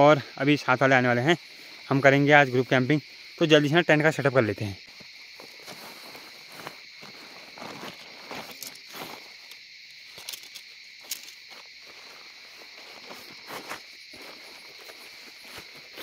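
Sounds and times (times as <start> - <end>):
insect chirring: 0.0 - 16.0
leaf litter crunching: 5.4 - 9.3.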